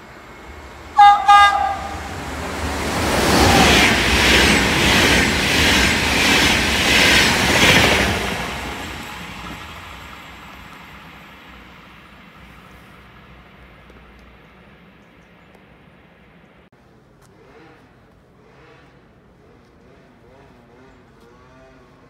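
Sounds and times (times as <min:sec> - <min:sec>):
train horn blasts: 0:01.0 - 0:02.5
train wheels clattering: 0:01.4 - 0:11.2.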